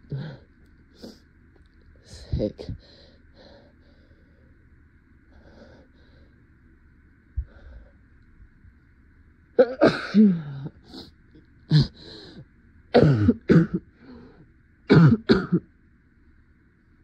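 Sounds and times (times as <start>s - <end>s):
woman coughing: 9.6s - 10.7s, 13.0s - 13.8s, 14.9s - 15.6s.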